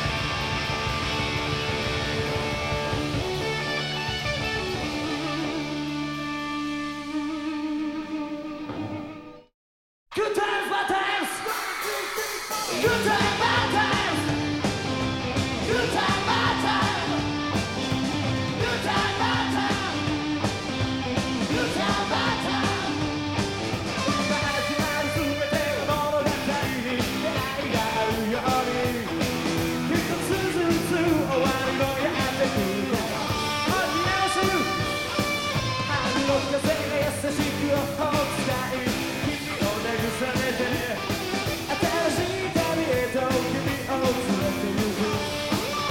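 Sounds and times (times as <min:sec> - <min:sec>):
rock band playing live: 0:00.0 - 0:09.4, 0:11.4 - 0:45.9
man singing: 0:10.2 - 0:14.5, 0:15.6 - 0:17.3, 0:18.6 - 0:20.2, 0:21.5 - 0:23.0, 0:24.0 - 0:35.0, 0:35.7 - 0:45.9.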